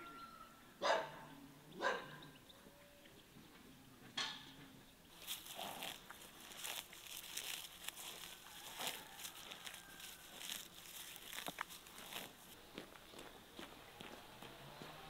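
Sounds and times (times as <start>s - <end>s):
cow tearing and chewing grass: 5.1s - 15.0s.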